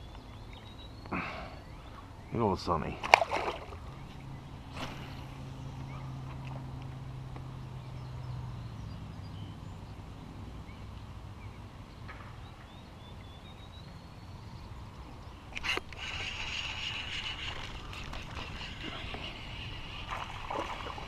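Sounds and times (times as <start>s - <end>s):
faint bird calls: 15.5s - 21.0s.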